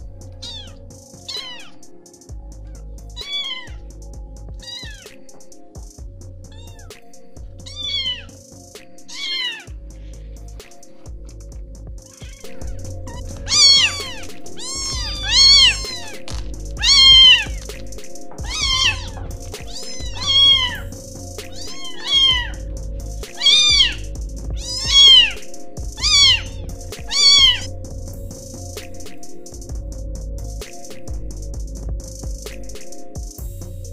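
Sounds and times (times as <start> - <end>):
background music: 0.0 - 33.9
kittens meowing: 0.4 - 1.8, 2.6 - 3.9, 4.6 - 5.2, 6.5 - 6.9, 7.6 - 8.4, 9.1 - 10.2, 12.0 - 17.6, 18.4 - 22.7, 23.3 - 27.7.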